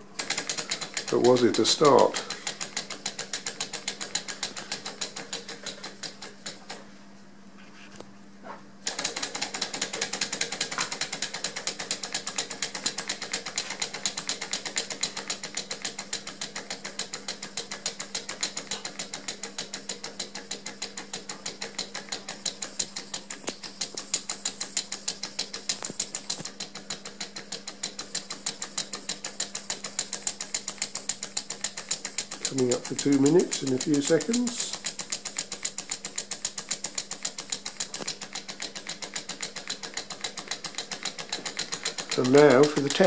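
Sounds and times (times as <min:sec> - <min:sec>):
small engine linkages clicking: 0:00.2 - 0:06.8, 0:08.8 - 0:43.0.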